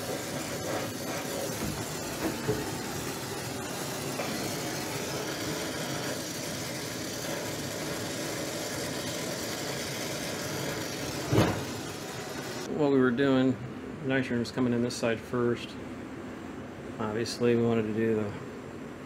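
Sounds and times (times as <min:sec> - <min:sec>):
torch flame hissing: 0:00.0 - 0:12.7.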